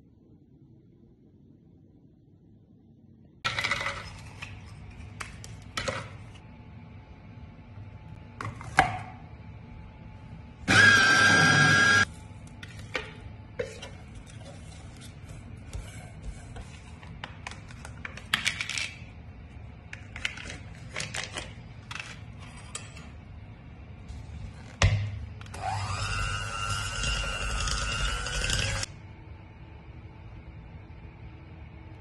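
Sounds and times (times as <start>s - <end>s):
electric hand mixer whine: 10.7s - 12.1s, 25.5s - 28.9s.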